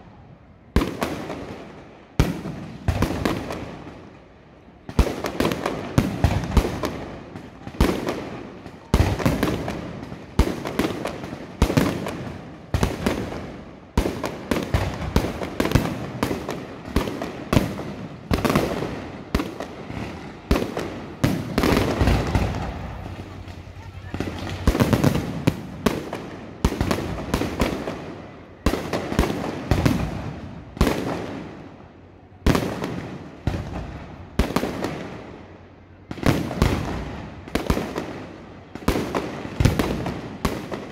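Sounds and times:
firework shells bursting: 20.6 - 26.2.

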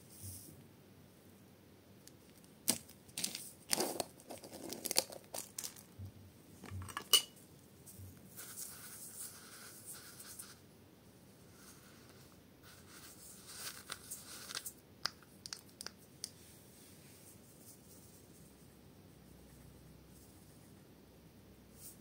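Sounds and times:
gritty rustle of beads: 2.7 - 5.9.

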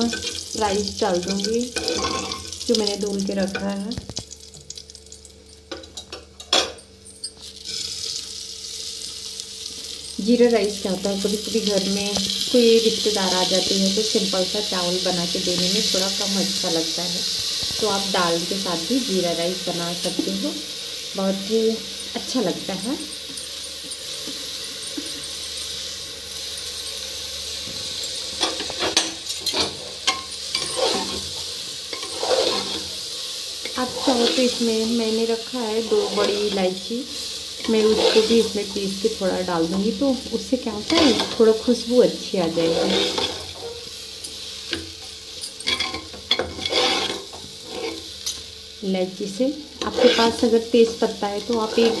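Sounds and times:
rice sizzling in hot butter: 0.0 - 5.7, 7.4 - 52.0
metal spoon scraping pot: 28.5 - 31.2, 31.9 - 32.9, 37.6 - 38.5, 42.5 - 43.8, 45.6 - 48.0, 49.8 - 50.4.

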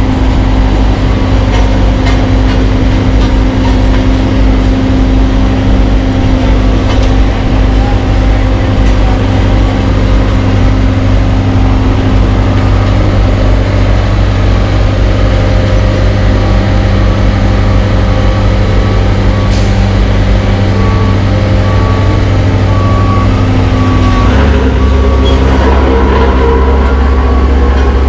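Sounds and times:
diesel engines humming: 0.0 - 28.0.

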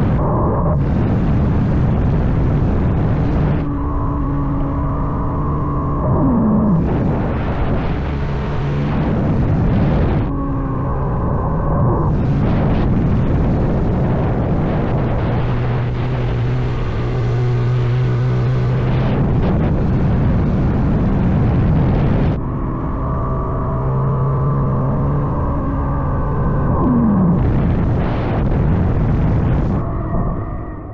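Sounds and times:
wind noise on microphone: 0.0 - 30.9.

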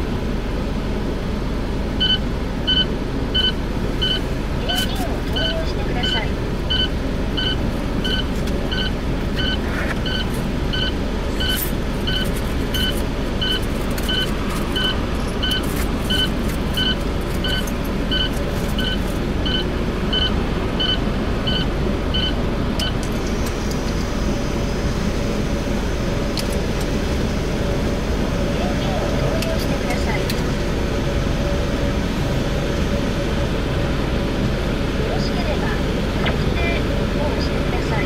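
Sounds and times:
car wash machine rumbling: 0.0 - 38.0
electronic beeps: 2.0 - 23.0.

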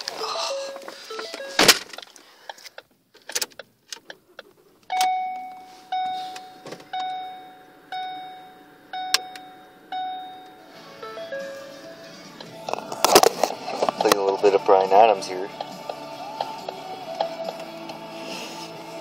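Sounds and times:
dashboard warning chime: 0.3 - 1.6, 4.9 - 12.1
car door shutting: 6.0 - 7.2.

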